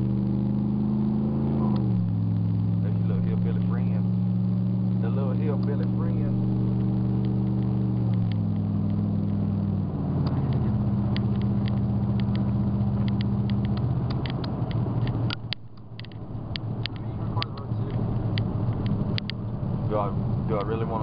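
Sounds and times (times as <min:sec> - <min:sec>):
road noise: 0:00.0 - 0:21.0
truck engine drone: 0:00.0 - 0:21.0
light clicks and rattles: 0:10.2 - 0:19.6.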